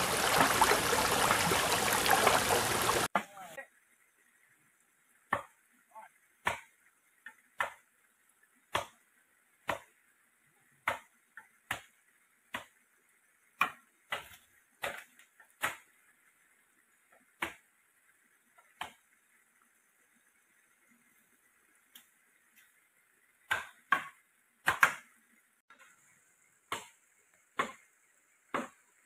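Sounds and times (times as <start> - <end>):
machete chopping bamboo: 6.4 - 6.7, 8.7 - 9.0, 9.7 - 9.9, 10.8 - 11.1, 13.6 - 15.9, 23.5 - 25.1, 26.7 - 27.0, 27.6 - 27.8, 28.5 - 28.8.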